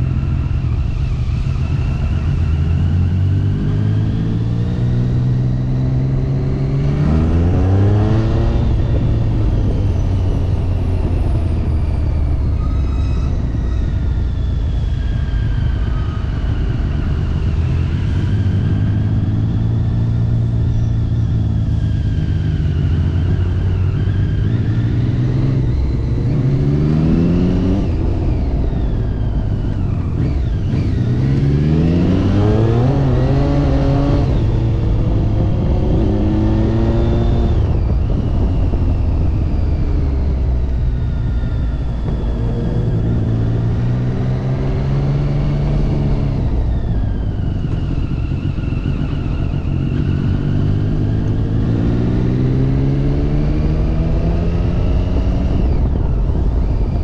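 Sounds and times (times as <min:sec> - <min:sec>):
motorcycle engine accelerating: 0:00.0 - 0:57.0
wind noise: 0:00.0 - 0:57.0.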